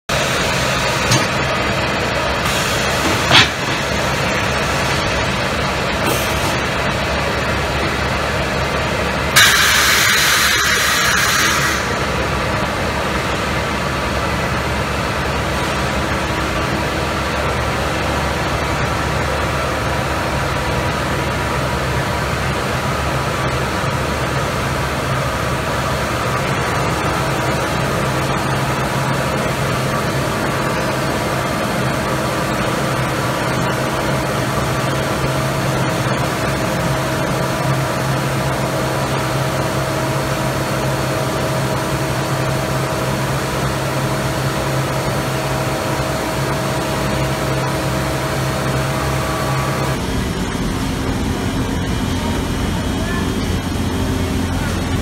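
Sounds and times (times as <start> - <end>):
factory machinery droning: 0.1 - 55.0
loud hiss: 9.4 - 12.2.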